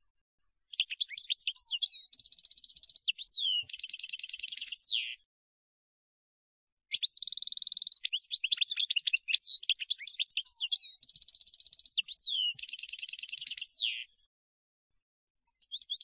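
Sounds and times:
goldfinch singing: 0.7 - 5.0, 6.9 - 14.0.

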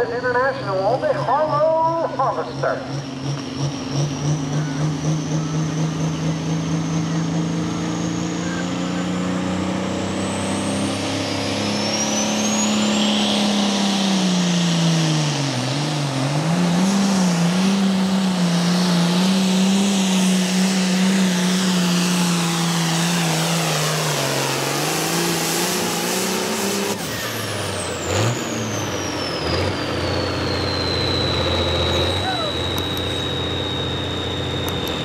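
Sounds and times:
diesel engine running under load: 0.0 - 35.0
turbocharger whistle winding down: 10.4 - 35.0.

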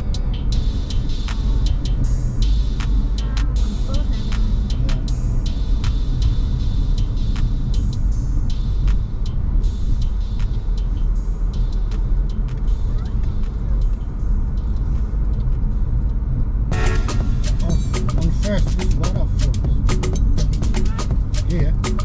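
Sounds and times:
car engine and road noise: 0.0 - 22.0.

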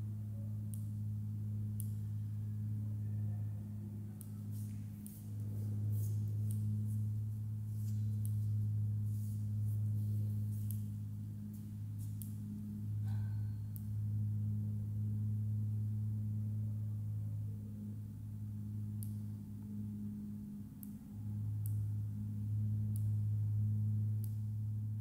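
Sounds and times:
ambient music drone: 0.0 - 25.0
faint light ticks: 0.7 - 1.0, 1.7 - 2.3, 4.1 - 14.1, 18.6 - 24.8.

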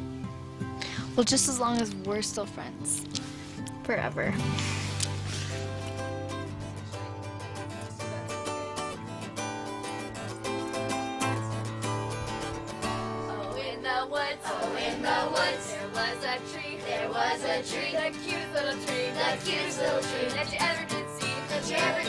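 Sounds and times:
acoustic guitar strumming: 0.0 - 22.0
person singing: 13.0 - 22.0.

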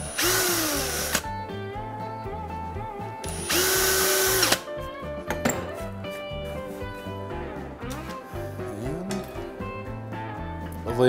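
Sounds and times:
cordless drill drilling into wood: 0.0 - 1.3, 3.2 - 4.6
background music: 0.0 - 11.0.

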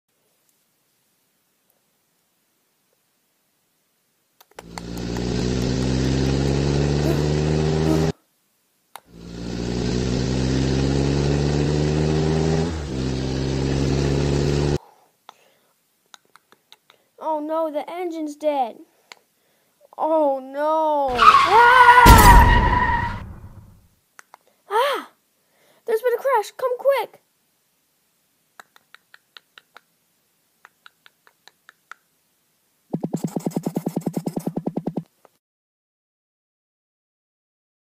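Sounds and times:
small sharp clicks: 4.4 - 6.0, 24.2 - 24.5
car engine starting and running: 4.7 - 8.1, 9.1 - 14.8, 21.1 - 23.7.

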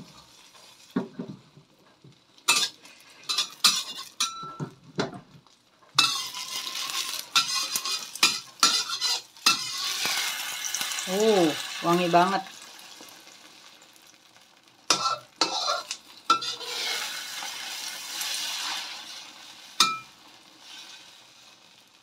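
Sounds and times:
egg frying sizzle: 0.0 - 22.0
spatula scraping a wok: 2.4 - 4.6, 5.9 - 11.8, 14.9 - 21.8.

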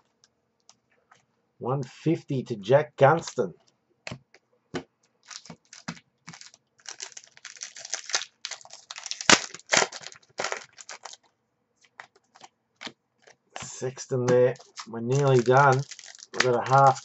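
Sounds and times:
wrappers crinkling and tearing: 5.2 - 11.3, 13.2 - 17.0
cards being flicked through: 13.6 - 17.0.

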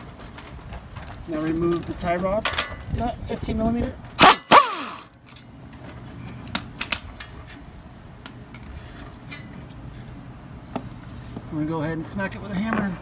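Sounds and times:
power tool spinning down: 4.2 - 5.1
metallic clicks of tools: 4.5 - 5.5.

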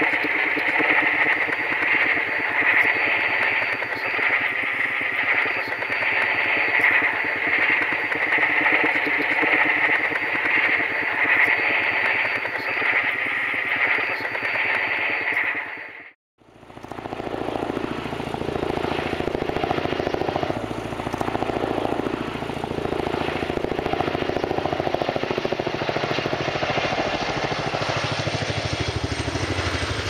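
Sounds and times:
helicopter rotors beating: 0.0 - 30.0.

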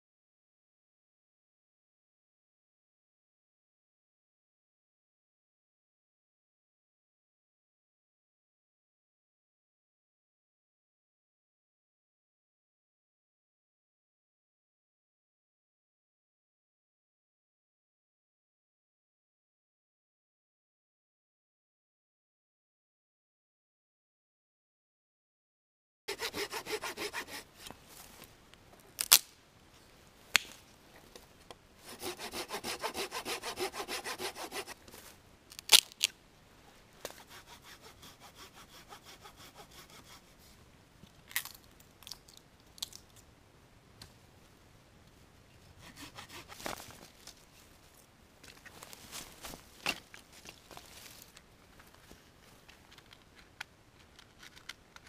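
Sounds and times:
hand saw cutting wood: 26.1 - 27.7, 31.8 - 34.8, 37.1 - 40.3, 45.8 - 46.9.

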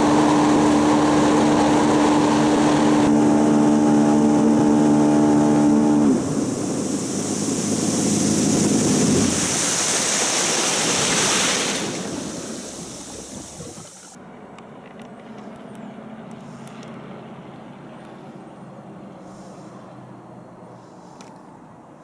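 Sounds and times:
wind and water rushing: 0.0 - 14.2.

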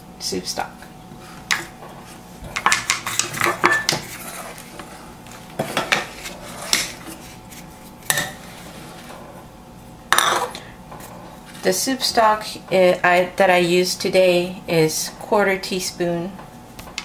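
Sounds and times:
metal ladle scraping a saucepan: 3.7 - 4.6, 6.1 - 7.4.

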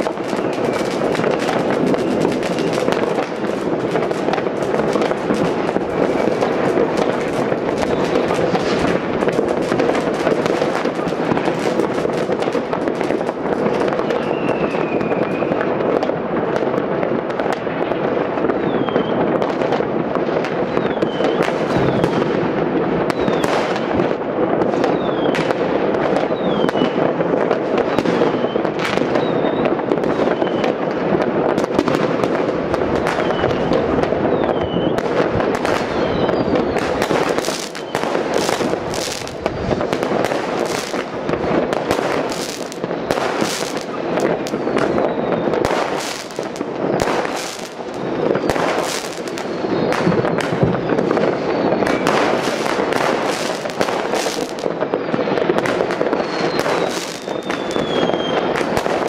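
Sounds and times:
falling firework whistles: 0.0 - 16.1, 18.4 - 59.0
sharp firecracker cracks: 0.0 - 16.2, 31.2 - 59.0
distant fireworks crackling: 0.0 - 59.0.

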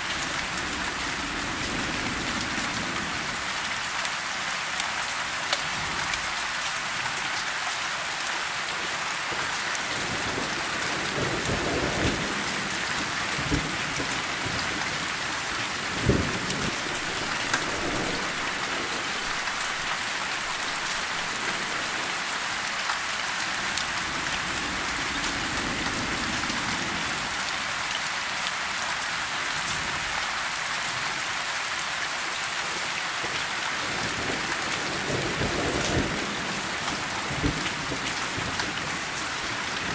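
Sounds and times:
steady rain falling: 0.0 - 39.9
thunder rumbling: 13.3 - 22.0.

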